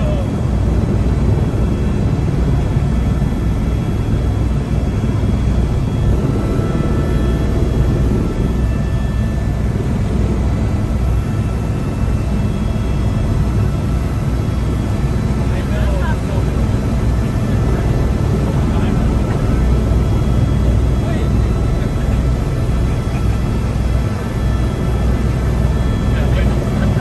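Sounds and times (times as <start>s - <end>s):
helicopter engine and rotor rumble: 0.0s - 27.0s.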